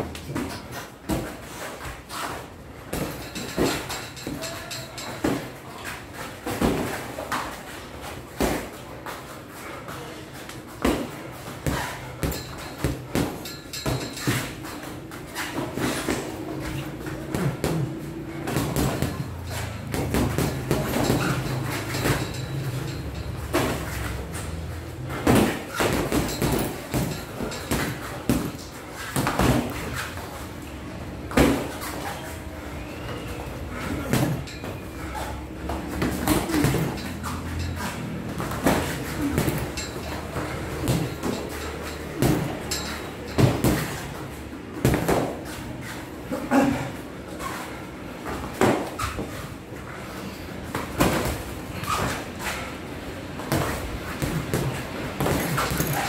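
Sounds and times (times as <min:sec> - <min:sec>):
boxing gloves thudding: 0:10.8 - 0:30.1, 0:33.9 - 0:37.5, 0:38.1 - 0:45.5, 0:53.4 - 0:56.0.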